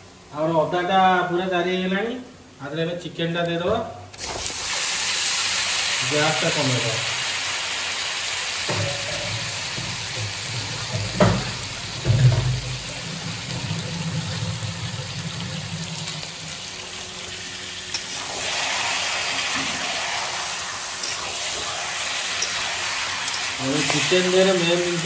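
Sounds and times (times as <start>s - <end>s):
chicken sizzling in hot oil: 4.2s - 25.0s
spatula stirring in pan: 17.9s - 24.3s.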